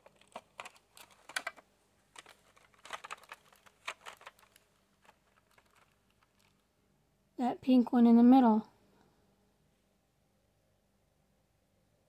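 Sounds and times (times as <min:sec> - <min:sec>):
plastic case clicking and tapping: 0:00.0 - 0:01.6, 0:02.2 - 0:05.9.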